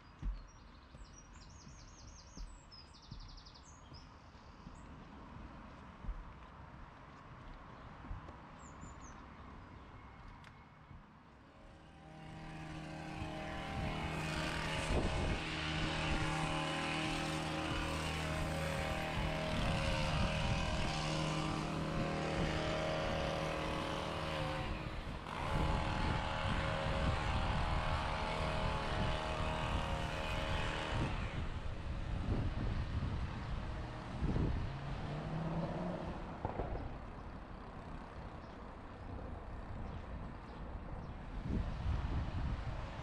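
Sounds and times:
engine drone: 0:11.2 - 0:43.0.

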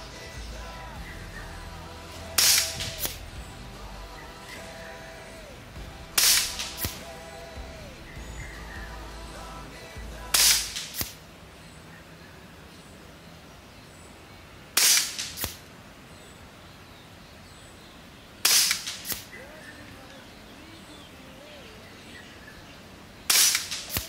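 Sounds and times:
air rifle shots: 0:02.4 - 0:03.2, 0:06.2 - 0:07.5, 0:10.4 - 0:11.2, 0:14.8 - 0:15.6, 0:18.4 - 0:19.4, 0:23.3 - 0:24.0.

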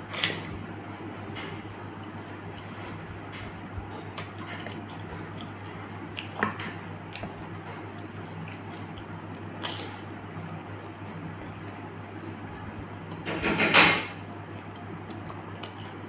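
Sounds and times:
steady low hum: 0:00.0 - 0:16.0
wet crunchy chewing: 0:04.0 - 0:10.0, 0:14.5 - 0:16.0.

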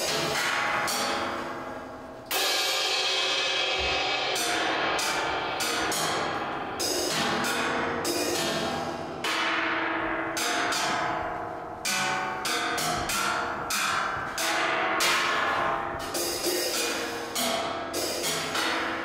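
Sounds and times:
bell-like percussion strokes: 0:02.3 - 0:12.5.

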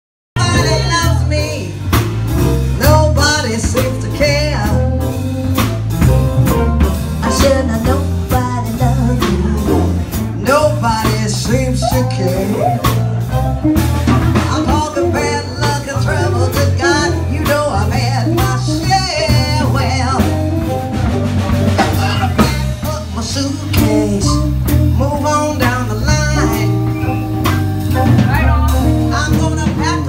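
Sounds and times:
woman singing into microphone: 0:00.4 - 0:01.8, 0:07.2 - 0:13.0, 0:14.4 - 0:20.4, 0:21.9 - 0:27.1
electric bass: 0:00.4 - 0:30.0
electric guitar: 0:00.4 - 0:30.0
steady drum beat: 0:00.4 - 0:30.0.

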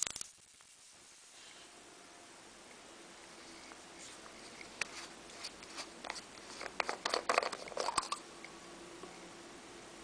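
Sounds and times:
plastic clicking and rubbing: 0:04.4 - 0:08.2.

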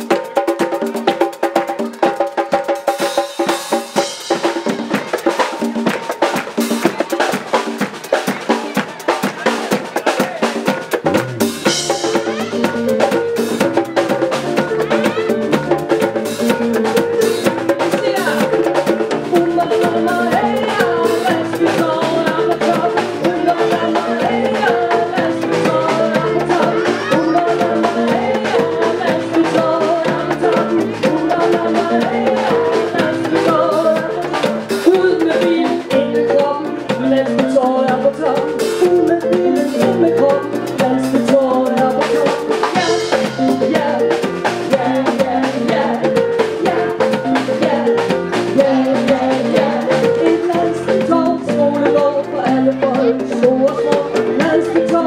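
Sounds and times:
conga drum: 0:00.0 - 0:55.0
drum kit beat: 0:00.0 - 0:55.0
live band through speakers: 0:00.0 - 0:55.0
guitar playing: 0:10.7 - 0:37.7.

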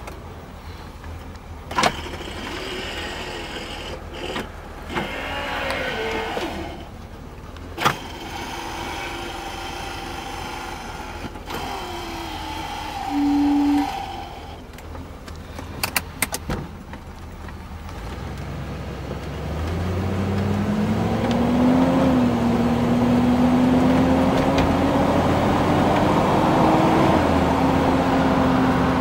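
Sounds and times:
car engine and road noise: 0:00.0 - 0:29.0
short steady tone: 0:13.0 - 0:14.2.

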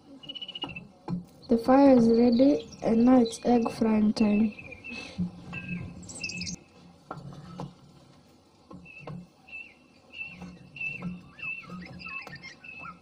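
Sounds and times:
bird chirping: 0:00.0 - 0:06.8, 0:08.7 - 0:13.0.

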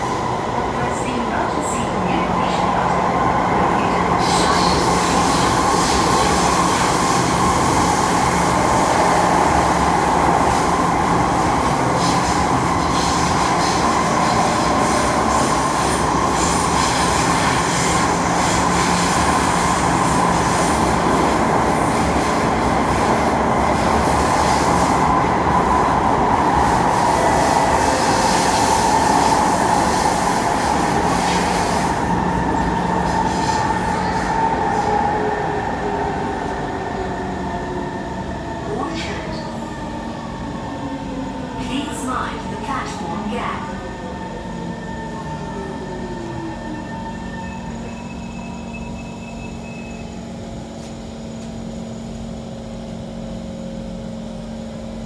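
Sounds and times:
train wheels rushing on rail: 0:00.0 - 0:55.0.

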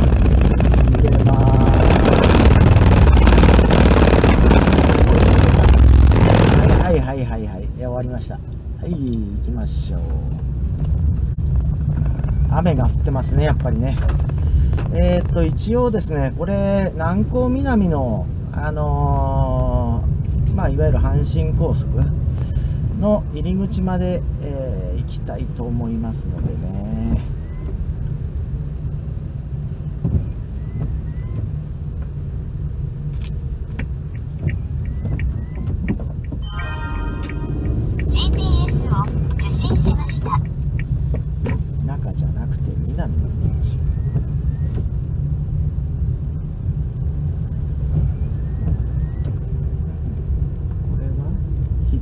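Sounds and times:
car engine and tyres rumbling: 0:00.0 - 0:52.0
windshield wipers squeaking: 0:33.7 - 0:36.9.

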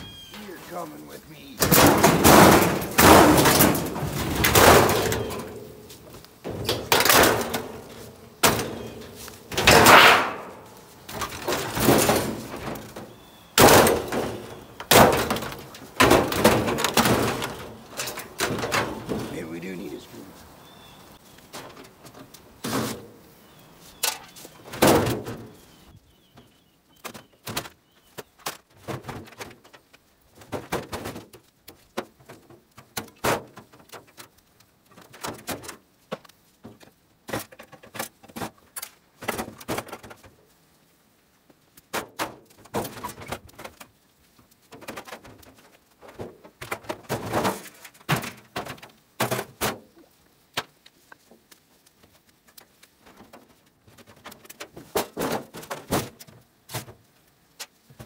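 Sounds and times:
steel panels knocking and rattling: 0:01.4 - 0:19.6, 0:27.0 - 0:40.4, 0:41.8 - 0:43.9, 0:44.6 - 0:51.3, 0:53.0 - 0:57.0
hard thunk: 0:01.6 - 0:05.2.

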